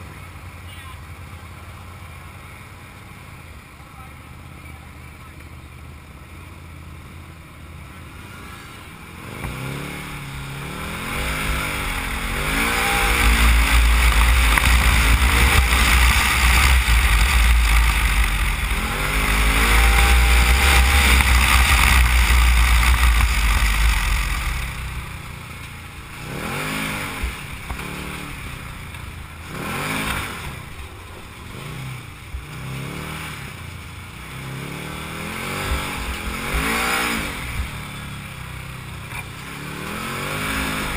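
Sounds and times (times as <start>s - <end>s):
off-road vehicle engine revving: 4.0s - 40.9s.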